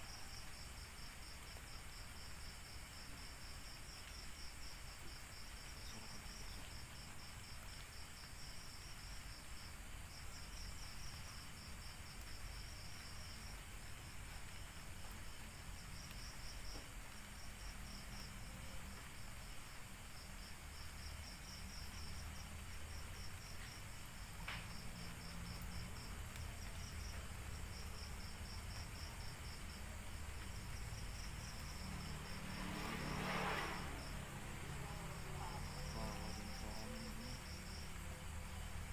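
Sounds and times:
low hum and hiss: 0.0 - 38.9.

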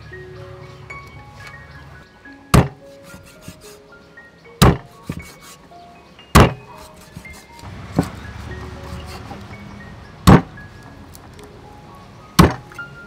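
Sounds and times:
soft melodic background music: 0.0 - 13.0
cleaver chopping on wooden block: 2.6 - 3.6, 4.6 - 5.6, 6.4 - 8.2, 10.3 - 10.5, 12.4 - 12.6.

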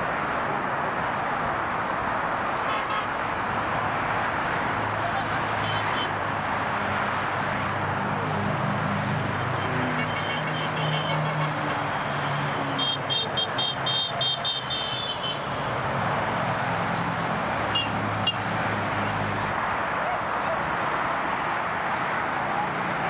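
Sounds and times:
vehicle horn tooting: 9.8 - 12.1, 17.7 - 18.4.

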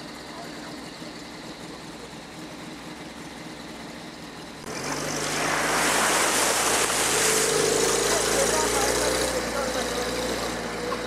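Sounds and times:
vehicle engine running: 0.0 - 11.0
water rushing and splashing: 4.7 - 10.9.

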